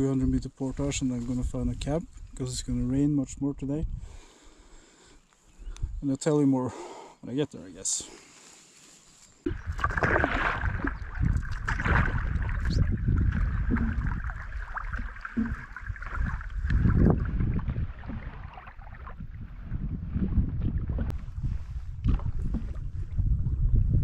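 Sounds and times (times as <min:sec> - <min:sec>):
wind rumble on microphone: 0:00.0 - 0:04.3, 0:05.6 - 0:06.0, 0:09.5 - 0:24.0
canoe paddle strokes in water: 0:08.5 - 0:23.8.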